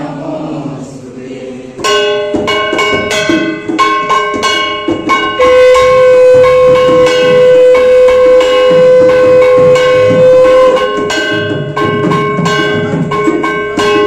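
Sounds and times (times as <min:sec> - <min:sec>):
hand bell ringing: 0:01.8 - 0:14.0
long held tone: 0:04.0 - 0:12.0.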